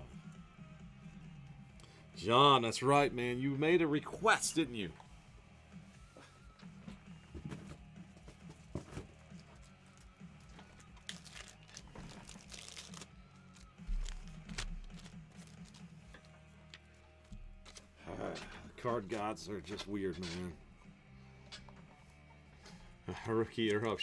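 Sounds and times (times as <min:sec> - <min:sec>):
quiet background music: 0:00.0 - 0:24.0
cards being handled: 0:07.4 - 0:18.0
wrappers crinkling and tearing: 0:10.7 - 0:16.0.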